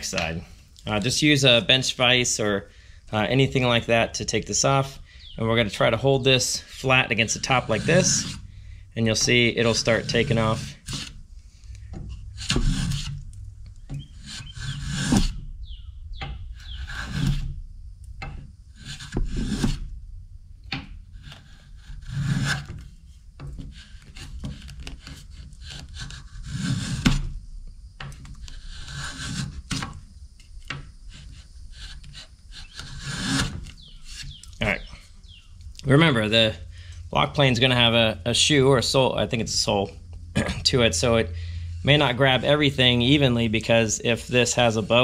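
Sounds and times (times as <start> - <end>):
block plane shaving wood: 6.6 - 8.4, 9.1 - 11.2, 12.1 - 13.3, 13.9 - 15.4, 16.6 - 17.5, 21.2 - 22.8, 23.6 - 27.3, 28.4 - 30.0, 31.1 - 34.4.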